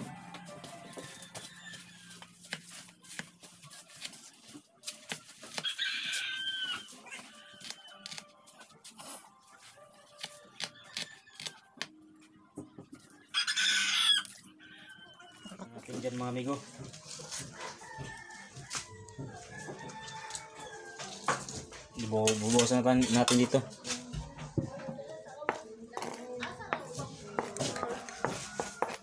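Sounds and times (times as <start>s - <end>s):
rooster crowing: 0.0s - 2.3s, 5.6s - 8.1s, 13.3s - 15.6s, 17.5s - 21.4s, 27.4s - 29.0s.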